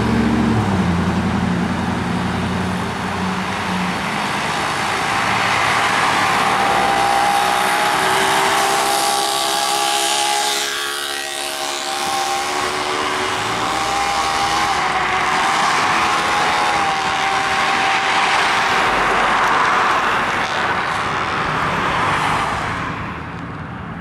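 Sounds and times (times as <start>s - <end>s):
fire engine running with whine: 0.0s - 21.8s
car passing close: 0.0s - 23.2s.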